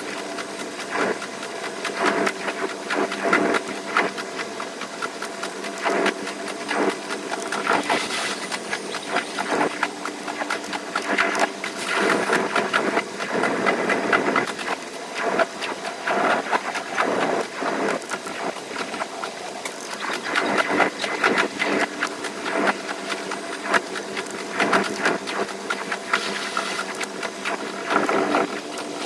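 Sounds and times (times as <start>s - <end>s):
steady hum: 0.0s - 29.0s.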